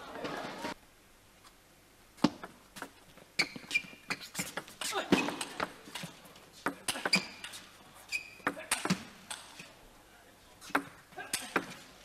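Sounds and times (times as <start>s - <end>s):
shoe squeaking on floor: 2.8s - 6.1s, 6.8s - 9.0s.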